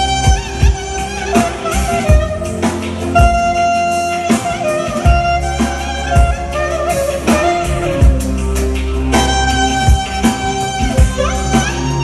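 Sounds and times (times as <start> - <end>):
clarinet melody: 0.0 - 12.0
keyboard accompaniment: 0.0 - 12.0
steady low beat: 0.0 - 12.0.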